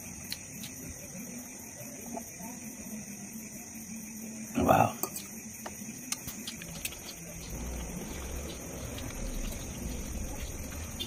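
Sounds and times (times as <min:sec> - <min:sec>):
soft chewing and mouth sounds: 0:05.0 - 0:11.0.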